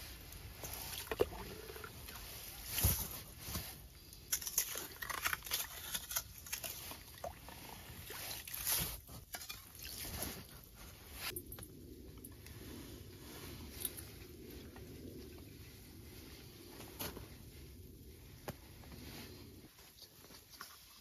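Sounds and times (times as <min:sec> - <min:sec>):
ice scraping and crunching: 0:00.6 - 0:11.4.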